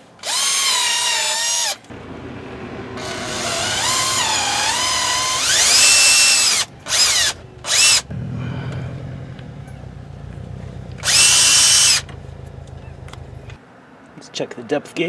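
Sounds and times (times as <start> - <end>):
cordless drill motor whine: 2.9 - 8.0, 11.0 - 12.1.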